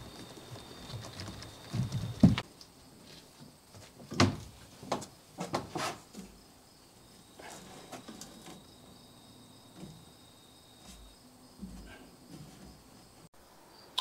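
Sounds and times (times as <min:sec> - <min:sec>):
corn husks rustling: 0:00.0 - 0:06.5
high insect trill: 0:00.0 - 0:14.0.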